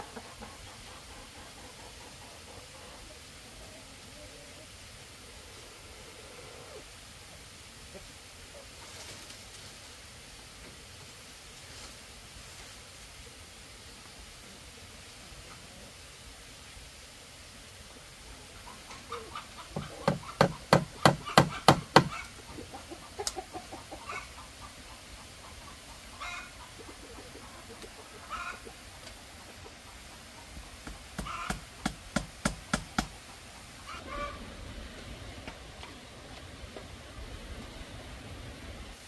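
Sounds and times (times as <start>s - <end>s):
chickens clucking: 0.0s - 9.4s, 18.3s - 34.5s
sharp knocks: 19.8s - 22.2s.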